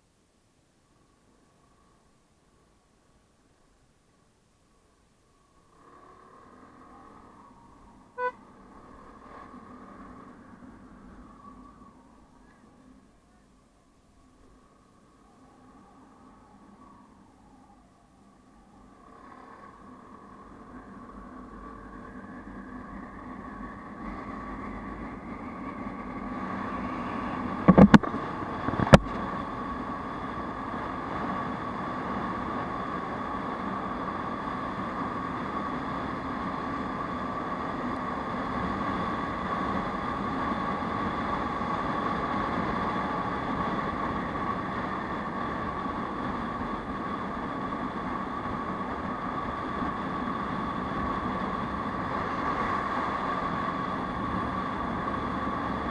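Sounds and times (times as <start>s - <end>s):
road and wind noise: 0.0s - 55.9s
sharp knocks: 27.7s - 28.1s.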